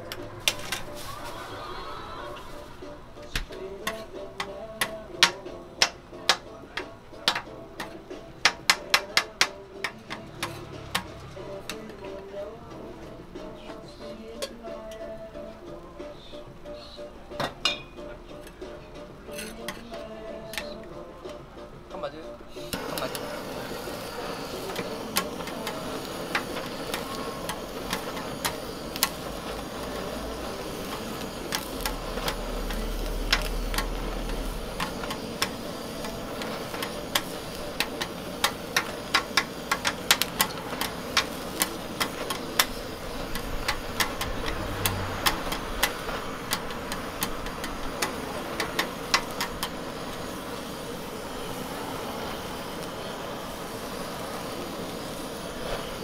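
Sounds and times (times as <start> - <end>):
chicken sizzling on griddle: 0.0 - 56.0
gas torch flame hissing: 0.0 - 56.0
metal spatula tapping griddle: 3.4 - 12.3, 14.2 - 15.1, 17.4 - 18.6, 19.3 - 21.4, 22.6 - 50.3.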